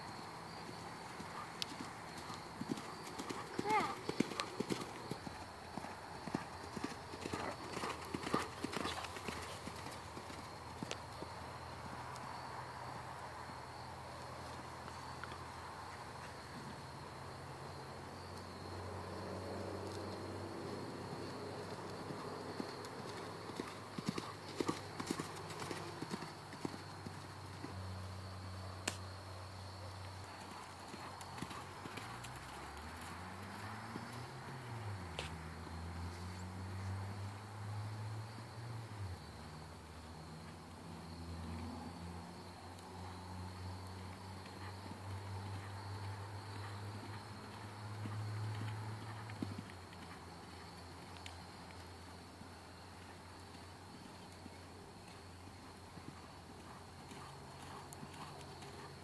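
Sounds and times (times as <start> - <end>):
hoofbeats on sand: 1.2 - 11.4, 44.1 - 51.2, 53.0 - 59.0.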